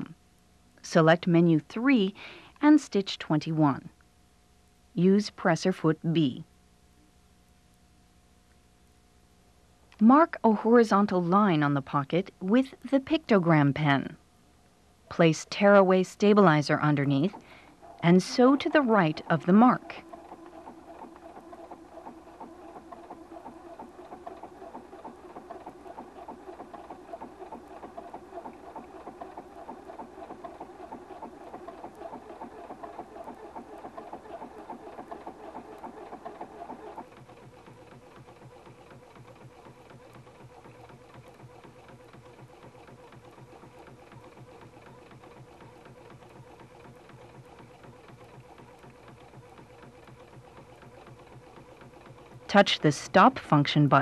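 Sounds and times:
sewing machine stitching: 15.1 - 54.0.

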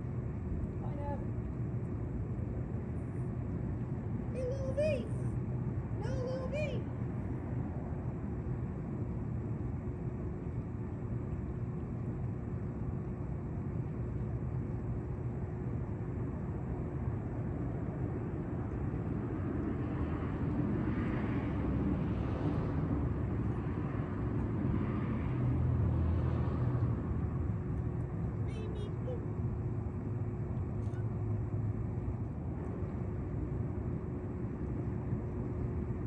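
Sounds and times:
city traffic rumble: 0.0 - 36.0.

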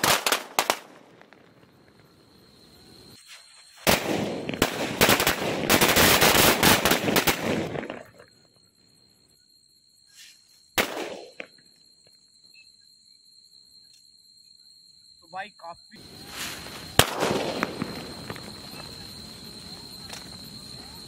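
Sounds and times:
firecracker string bangs: 16.8 - 18.5.

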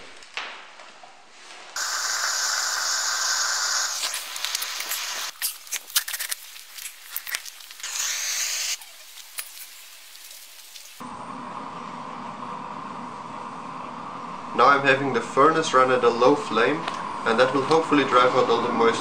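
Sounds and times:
propane burner hissing: 1.8 - 5.4, 7.5 - 17.9
clicks and crackles: 3.8 - 11.0.

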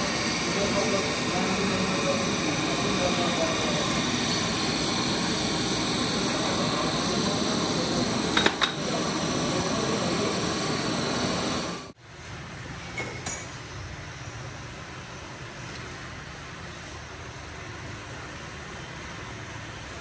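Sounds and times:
workshop machinery whooshing: 0.0 - 12.0.

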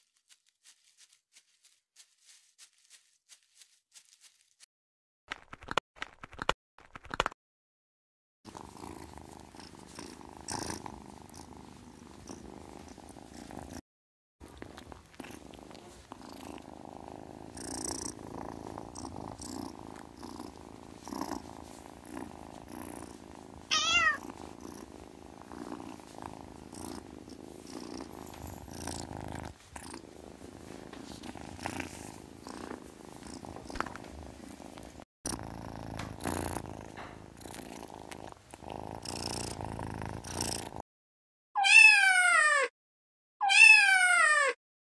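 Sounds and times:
cat purring: 8.5 - 13.8, 14.4 - 40.8
cat chirp: 23.7 - 24.2, 41.6 - 42.7, 43.4 - 44.6.

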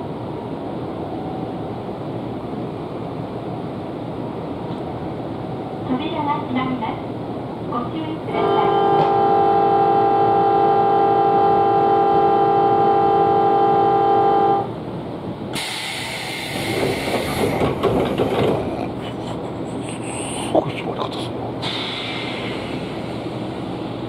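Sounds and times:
train noise: 0.0 - 24.0
train doors air hiss: 15.5 - 18.6, 21.6 - 24.0.

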